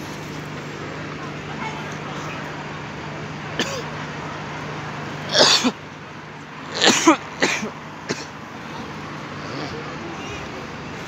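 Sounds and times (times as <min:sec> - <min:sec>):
idling traffic hum: 0:00.0 - 0:11.0
person coughing and clearing throat: 0:03.6 - 0:03.9, 0:05.3 - 0:05.8, 0:06.7 - 0:08.3.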